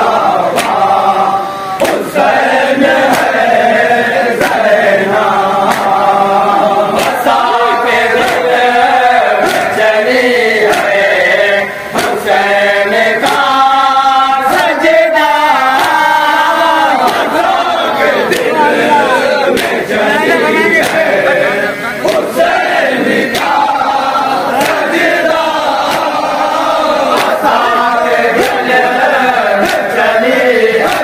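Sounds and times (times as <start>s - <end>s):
men chanting in unison: 0.0s - 31.0s
chest beating slaps: 0.4s - 0.9s, 1.7s - 3.5s, 4.3s - 4.8s, 5.6s - 6.1s, 6.9s - 7.6s, 8.2s - 10.0s, 10.6s - 13.6s, 17.0s - 18.9s, 19.5s - 21.2s, 22.0s - 23.8s, 24.5s - 30.0s.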